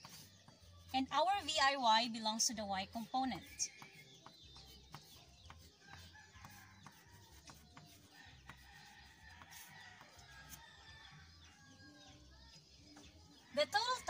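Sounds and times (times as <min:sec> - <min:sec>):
chalk ticking on chalkboard: 0:00.0 - 0:01.8, 0:02.6 - 0:11.2.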